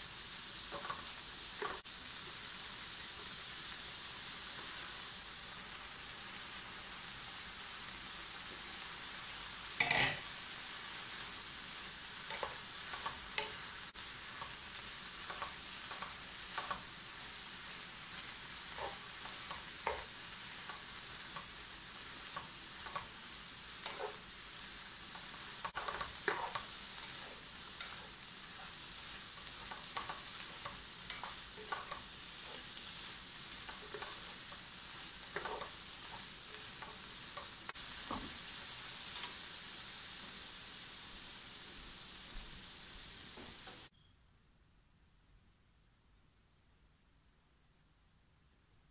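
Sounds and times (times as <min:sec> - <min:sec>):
food sizzling in frying pan: 0:00.0 - 0:43.9
spatula scraping pan: 0:09.8 - 0:10.3, 0:12.2 - 0:39.4.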